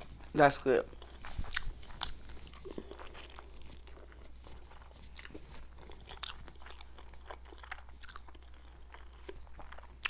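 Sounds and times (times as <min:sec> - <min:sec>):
mouth chewing clicks and smacks: 0:00.0 - 0:10.0.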